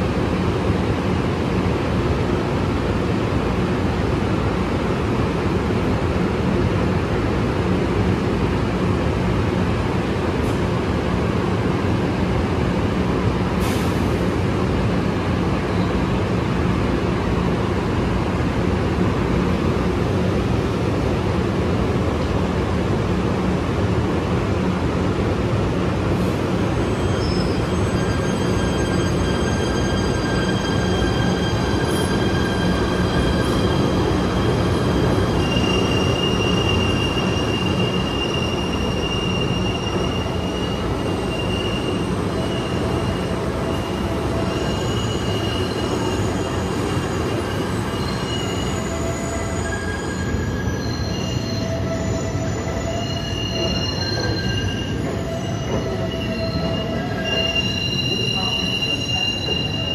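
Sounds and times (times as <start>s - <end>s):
subway train rumble: 0.0s - 59.9s
steel wheels squealing: 26.8s - 59.9s.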